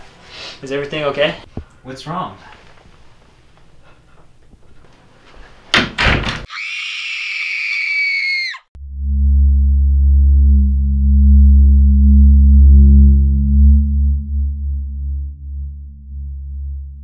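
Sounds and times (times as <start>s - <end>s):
high-pitched scream: 6.5s - 8.7s
low droning horror score: 8.8s - 17.0s.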